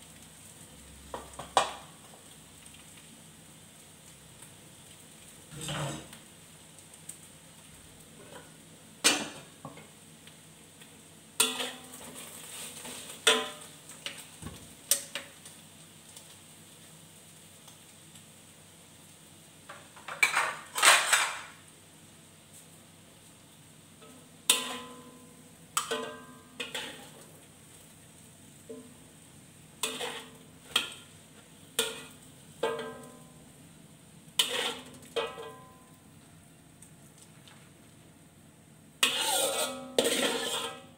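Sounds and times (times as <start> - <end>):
faint steady hiss: 0.0 - 40.9
metal spatula scraping a wok: 5.5 - 6.2, 11.4 - 13.7, 20.2 - 21.5, 24.0 - 25.2, 25.8 - 27.3, 29.8 - 31.1, 31.8 - 33.1, 34.4 - 35.6, 39.0 - 40.9.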